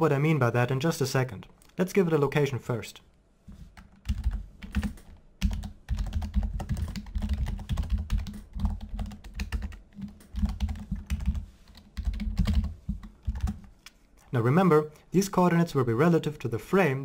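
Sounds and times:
typing on computer keyboard: 3.8s - 13.7s.

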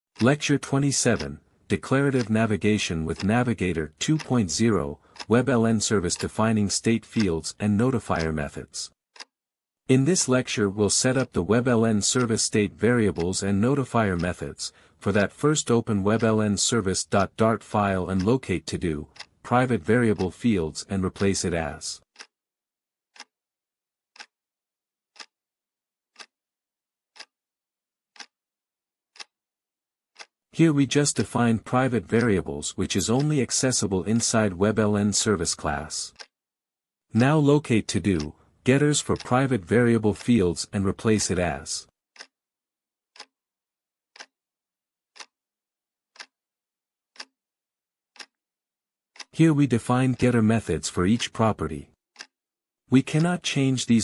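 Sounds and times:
clock ticking: 0.2s - 9.3s, 9.9s - 22.3s, 24.1s - 24.3s, 25.1s - 25.3s, 26.1s - 26.3s, 27.1s - 27.3s, 28.1s - 28.3s, 29.1s - 29.3s, 30.2s - 36.3s, 37.1s - 42.3s, 43.1s - 43.3s, 44.1s - 44.3s, 45.1s - 45.4s, 46.1s - 46.4s, 47.1s - 47.3s, 48.1s - 48.4s, 49.2s - 52.4s, 53.0s - 54.0s.

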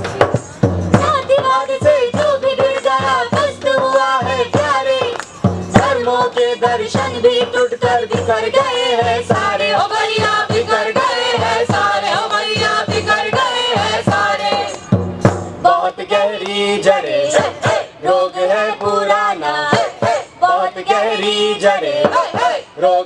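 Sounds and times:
frame drum beat: 0.0s - 15.7s
group singing in chorus: 1.1s - 15.0s, 15.6s - 23.0s.

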